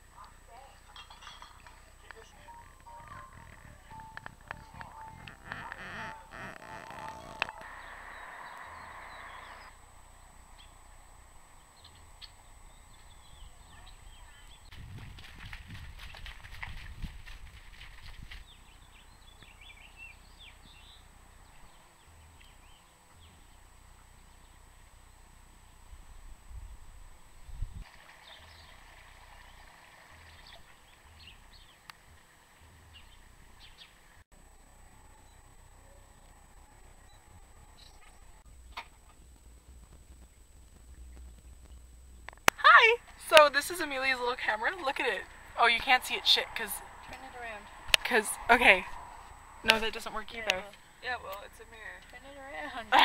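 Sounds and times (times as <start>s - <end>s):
small birds chirping: 1.9s - 11.0s, 11.6s - 15.0s, 17.8s - 25.8s, 30.2s - 34.2s, 39.8s - 42.5s
wind rumble on microphone: 2.6s - 9.4s, 12.7s - 23.5s, 25.8s - 27.9s, 35.0s - 42.5s.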